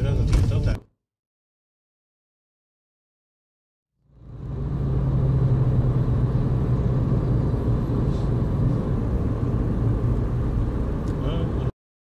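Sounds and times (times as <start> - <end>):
car engine and tyre rumble: 4.0 - 11.7.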